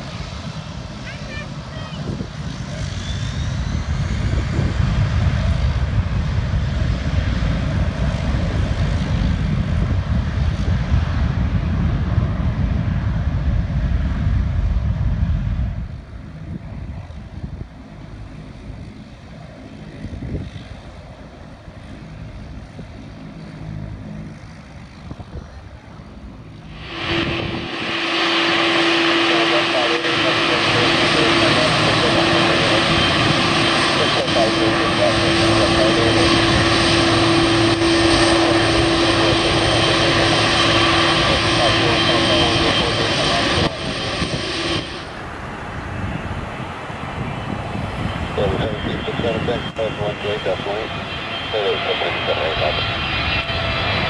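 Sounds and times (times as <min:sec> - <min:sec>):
jet engines rumbling: 0:00.0 - 0:54.0
taxiing jet hiss and whine: 0:26.5 - 0:45.7, 0:48.4 - 0:53.8.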